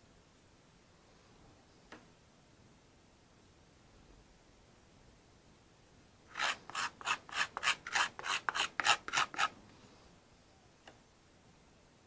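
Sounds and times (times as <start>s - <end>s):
putty knife scraping filler: 6.3s - 9.6s.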